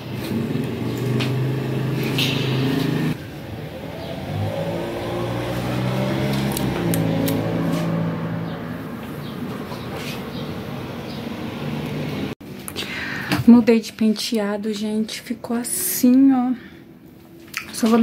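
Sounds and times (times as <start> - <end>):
vehicle engine humming: 0.0 - 12.4.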